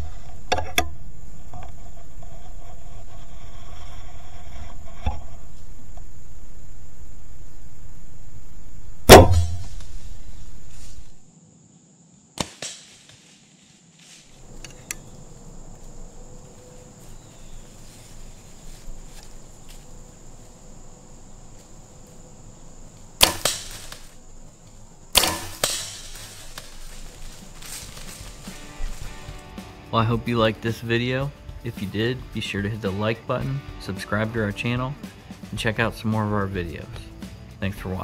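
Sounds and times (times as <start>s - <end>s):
bow string snapping: 9.0s - 11.2s, 23.2s - 29.0s.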